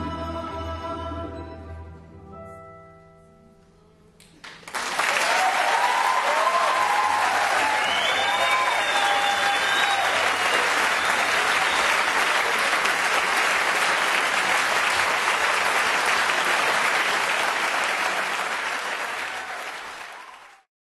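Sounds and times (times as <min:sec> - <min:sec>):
audience applauding: 0:04.4 - 0:20.7.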